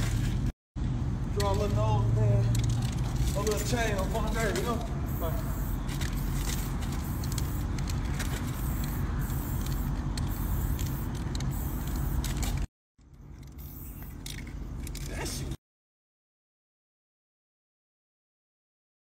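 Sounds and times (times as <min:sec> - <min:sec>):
spray paint can hissing: 0:04.8 - 0:12.7, 0:13.5 - 0:14.3.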